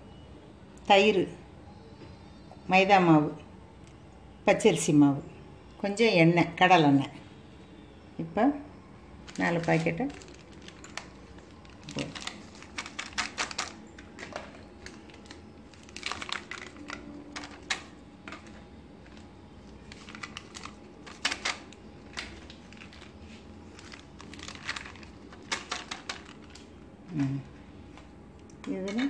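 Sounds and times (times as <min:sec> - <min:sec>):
plastic packets crinkling: 0:09.1 - 0:29.0
packets being tapped: 0:09.2 - 0:29.0.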